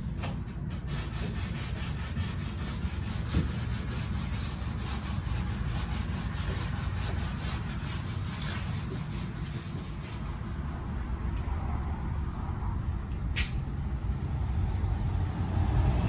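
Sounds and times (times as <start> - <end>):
sandpaper rasping on wood: 0.1 - 11.3.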